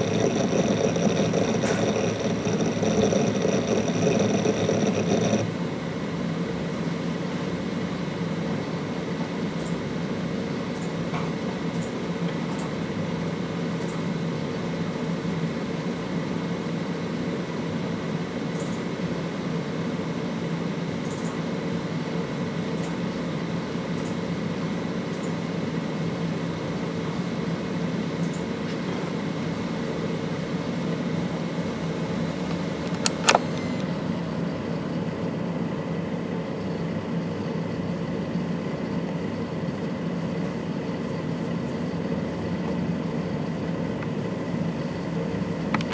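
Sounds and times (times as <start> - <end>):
hard drive whirring: 0.0 - 45.9.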